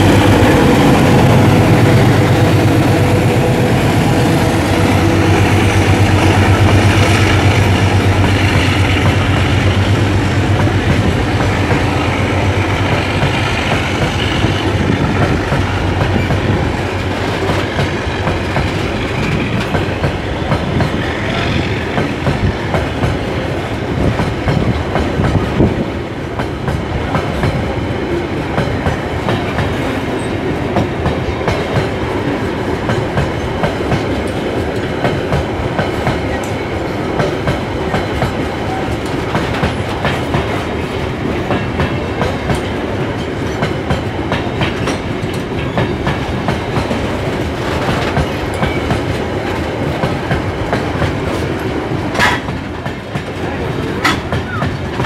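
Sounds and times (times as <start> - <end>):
freight train rolling past: 0.0 - 55.0
wheels clicking over rail joints: 37.2 - 55.0.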